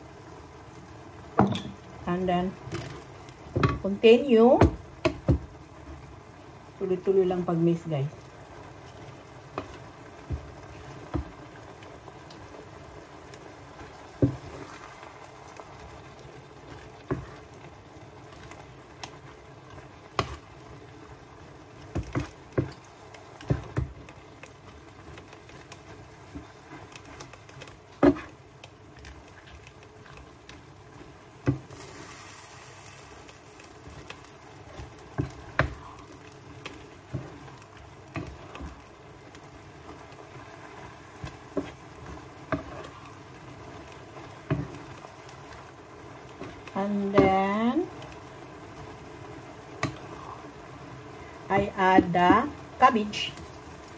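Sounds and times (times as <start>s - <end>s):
steady low hiss: 0.0s - 53.9s
wooden spatula knocking on pan: 1.4s - 1.8s, 3.5s - 5.6s, 9.5s - 11.4s, 14.2s - 14.5s, 17.0s - 17.4s, 20.2s - 20.4s, 21.9s - 22.8s, 23.4s - 24.1s, 28.0s - 28.3s, 31.4s - 31.7s, 34.7s - 36.0s, 44.4s - 44.8s, 47.0s - 47.5s, 51.6s - 52.5s.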